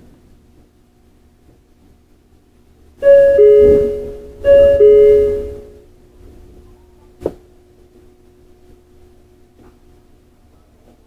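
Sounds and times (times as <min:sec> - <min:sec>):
two-note electronic chime: 0:03.0 - 0:05.9.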